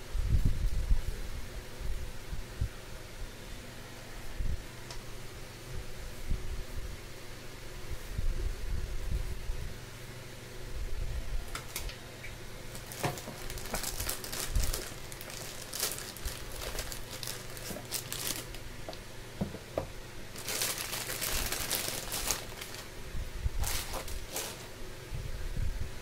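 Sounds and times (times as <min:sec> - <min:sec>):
packaging crinkling and rustling: 0:12.7 - 0:23.0, 0:23.6 - 0:24.8.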